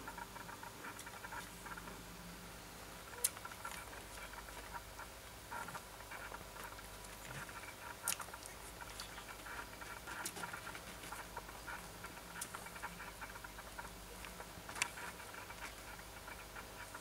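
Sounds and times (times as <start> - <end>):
puppies suckling clicks: 3.1 - 17.0.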